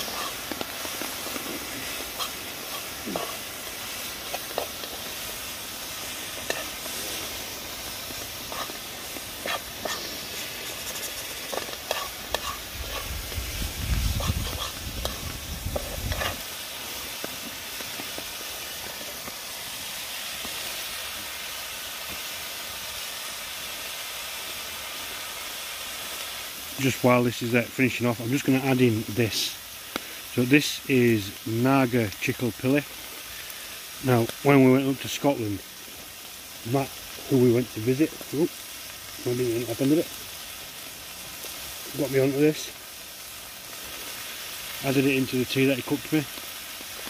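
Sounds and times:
utensil scraping a pan: 0.0s - 16.5s
food sizzling in a pan: 0.0s - 47.0s.

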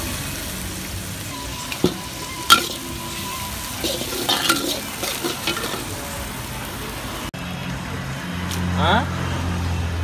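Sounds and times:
seafood sizzling in a wok: 0.0s - 7.3s
spatula clanking against wok: 1.7s - 6.0s
metal spatula scraping a wok: 1.8s - 6.0s.

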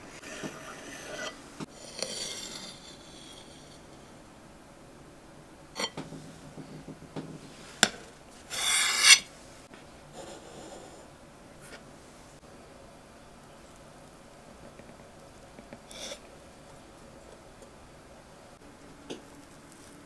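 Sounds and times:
short rasping scrape: 8.5s - 9.3s.

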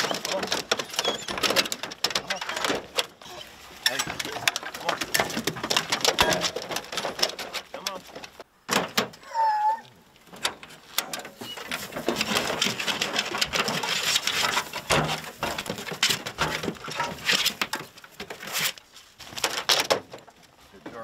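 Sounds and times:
dog whining: 0.0s - 1.7s, 2.3s - 3.6s, 9.2s - 10.0s
straw rustling: 0.0s - 8.5s, 10.0s - 21.0s.

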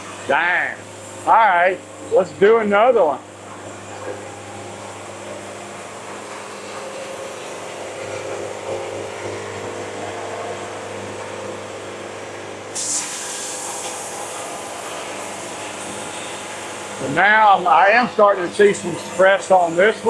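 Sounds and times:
sharp saw hiss: 12.7s - 16.7s.

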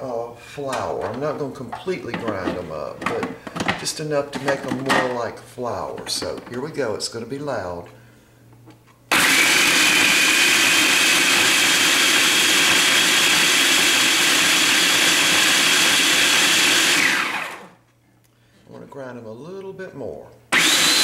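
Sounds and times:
food processor grinding oats: 9.1s - 17.8s, 20.5s - 21.0s.

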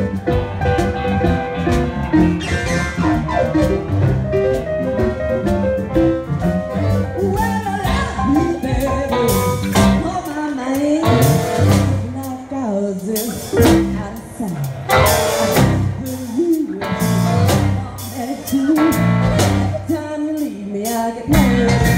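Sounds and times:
live blues band: 0.0s - 21.9s
woman singing: 7.1s - 21.9s.

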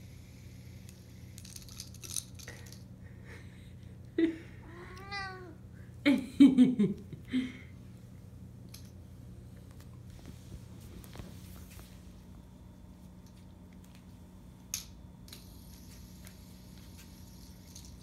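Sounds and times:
plastic toy rattling on wooden floor: 1.4s - 2.8s
cat meowing: 4.6s - 5.6s.

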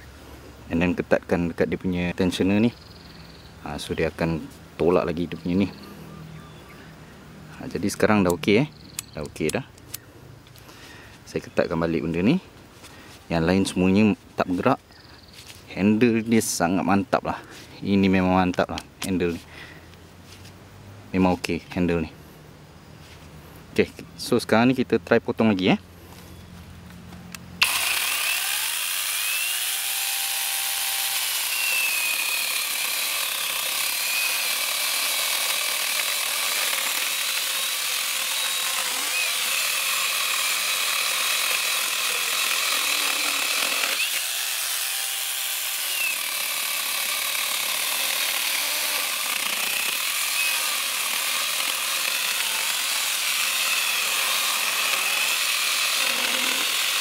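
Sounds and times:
chainsaw cutting through log: 27.6s - 57.0s.

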